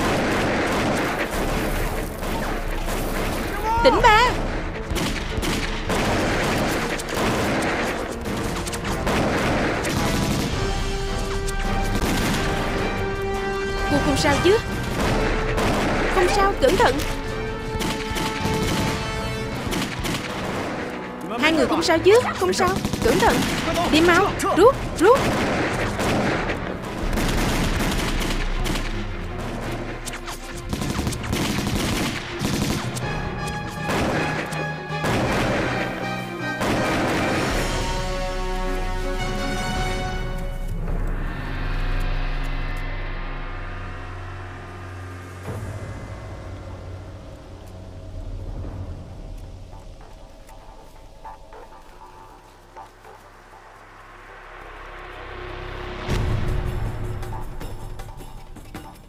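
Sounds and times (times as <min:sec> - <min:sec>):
rifle shots: 0:00.0 - 0:03.5, 0:04.9 - 0:10.9, 0:25.0 - 0:29.8, 0:36.6 - 0:37.8
background music held notes: 0:00.0 - 0:59.0.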